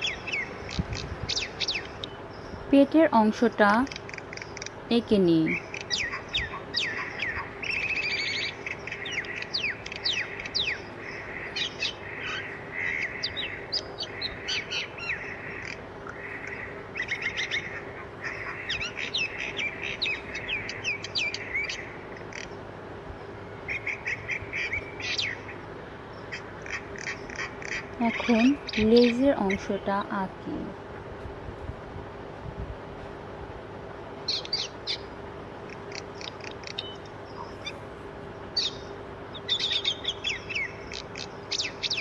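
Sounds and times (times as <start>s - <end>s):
small birds chirping: 0.0s - 31.2s, 33.9s - 42.0s
faint steady hum: 0.0s - 42.0s.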